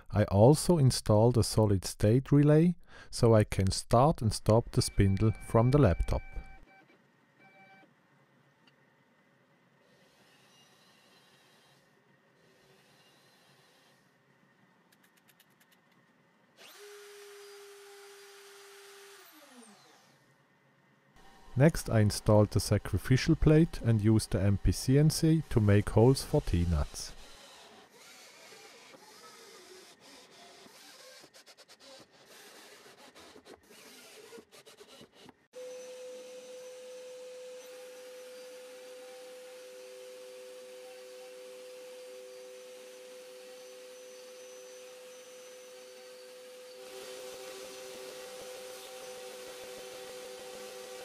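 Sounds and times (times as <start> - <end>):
spindle motor whine: 35.6 - 51.0.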